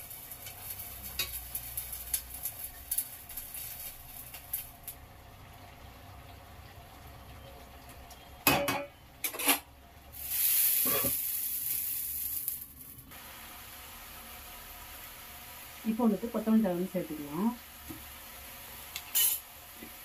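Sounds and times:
curry sizzling in pan: 0.0s - 8.1s, 10.1s - 20.0s
metal pots clanking: 8.4s - 9.7s.

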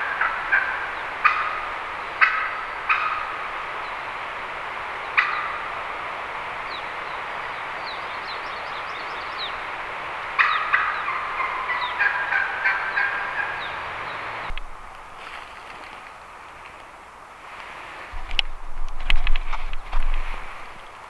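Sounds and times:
turkey gobbling: 0.0s - 3.5s, 5.1s - 5.7s, 10.4s - 14.5s.

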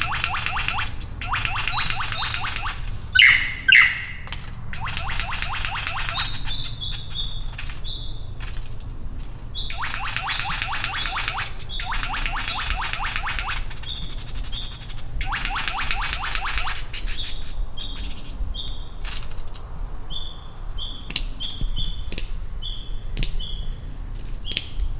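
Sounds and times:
lyrebird short high notes: 0.0s - 6.8s
lyrebird rapid descending clicks: 0.0s - 17.3s.

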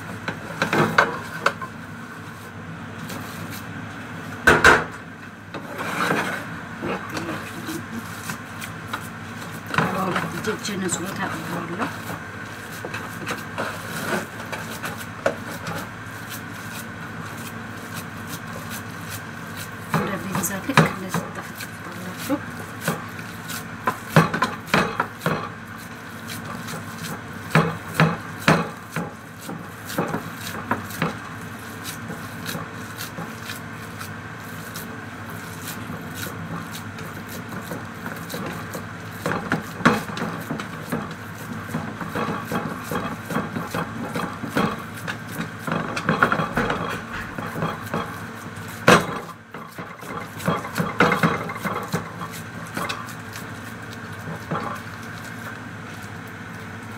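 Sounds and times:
knocks and scraping on tray: 5.6s - 7.5s, 36.4s - 53.1s
hands patting minced meat: 11.4s - 56.9s.

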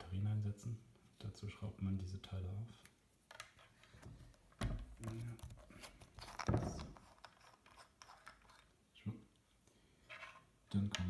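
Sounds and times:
handling knocks and rustle: 3.4s - 8.7s.

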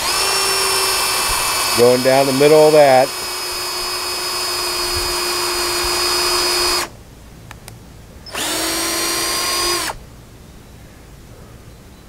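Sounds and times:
cordless drill boring wood: 0.0s - 6.9s, 8.3s - 10.0s.

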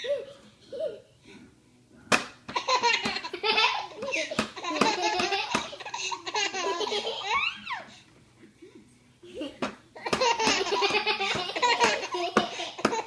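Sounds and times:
baby laughing: 2.5s - 8.0s, 9.4s - 13.0s.

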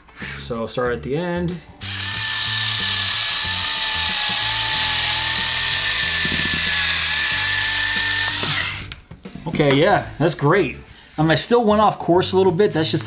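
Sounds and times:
electric cutter whining: 1.8s - 9.0s.

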